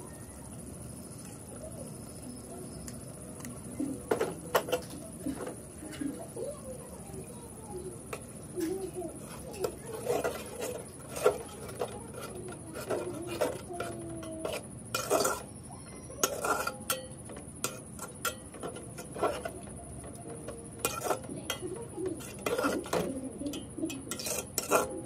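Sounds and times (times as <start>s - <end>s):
metal spoon scraping a pot: 8.1s - 25.0s.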